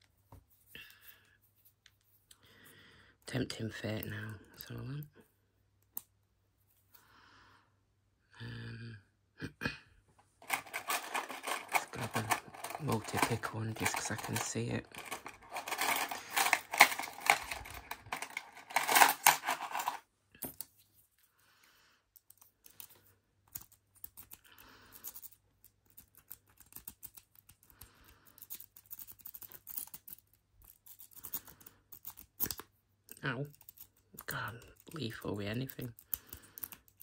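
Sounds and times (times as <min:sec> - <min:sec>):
lock picks clattering and scraping: 0:10.4 - 0:20.0.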